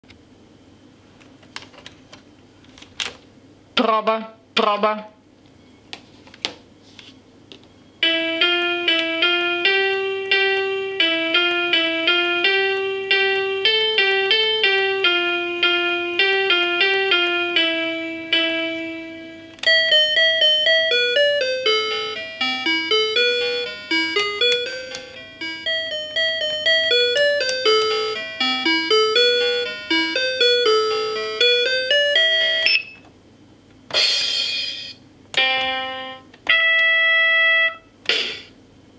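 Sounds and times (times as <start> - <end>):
toy keyboard beeping melody: 8.0 - 33.0, 35.4 - 37.8.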